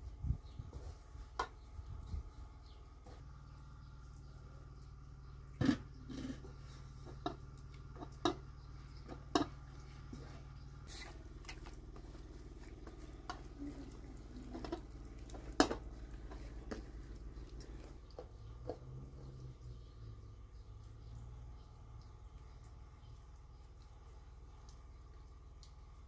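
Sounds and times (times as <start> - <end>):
dough squishing: 0.0 - 19.8
steady low hum: 0.0 - 26.0.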